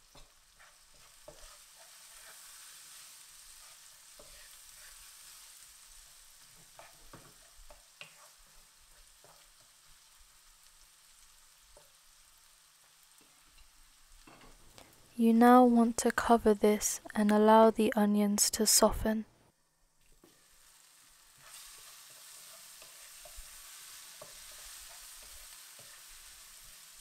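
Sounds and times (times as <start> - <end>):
wooden spoon scraping a pan: 0.0 - 9.8, 21.3 - 26.8
onions sizzling in oil: 0.0 - 16.2, 19.7 - 27.0.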